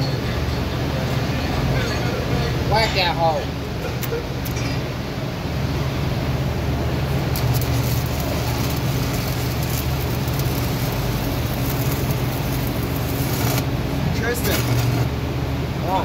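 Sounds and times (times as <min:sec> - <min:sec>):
welding arc crackling and hissing: 0:06.8 - 0:15.2.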